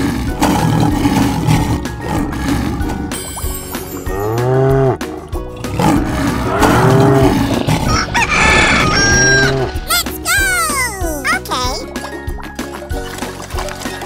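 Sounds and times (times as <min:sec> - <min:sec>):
background music: 0:00.0 - 0:14.0.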